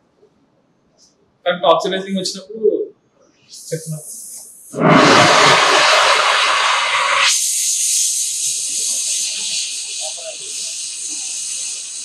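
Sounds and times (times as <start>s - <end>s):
welding torch flame hissing: 3.8s - 12.0s.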